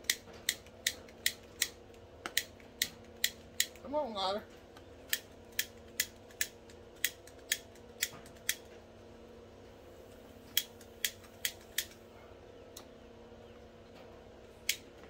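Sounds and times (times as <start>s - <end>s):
spark lighter snapping: 10.5s - 12.0s.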